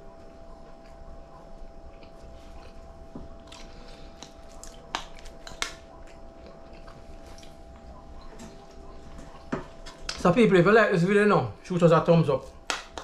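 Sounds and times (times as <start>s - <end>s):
faint steady hum: 0.0s - 13.0s
person chewing with clicks: 1.8s - 10.2s.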